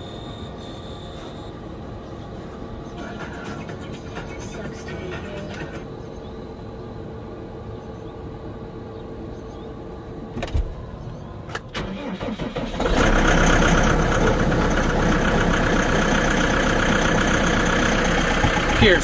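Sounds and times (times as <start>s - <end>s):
tractor diesel engine running: 0.0s - 19.0s
tractor diesel engine cranking: 11.5s - 19.0s.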